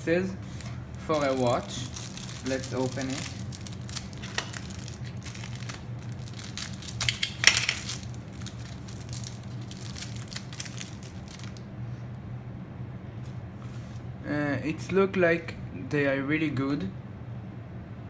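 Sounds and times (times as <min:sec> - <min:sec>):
plastic bag crinkling: 0:00.4 - 0:11.7.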